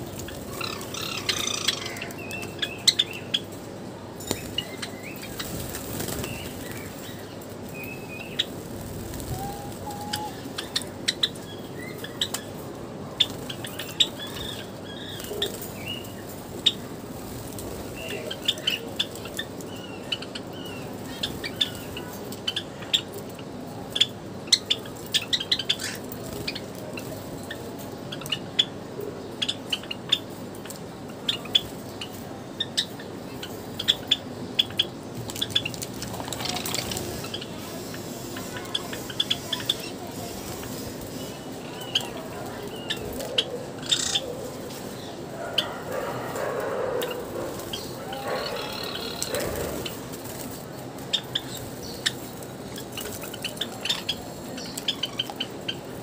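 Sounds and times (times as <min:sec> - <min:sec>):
sparrows chirping: 0:00.0 - 0:56.0
steady background hiss: 0:00.0 - 0:56.0.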